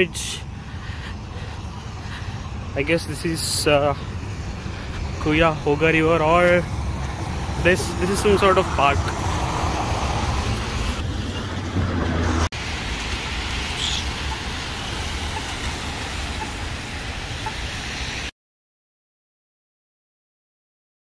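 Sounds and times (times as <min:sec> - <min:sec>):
cars on wet road: 0:00.0 - 0:18.3.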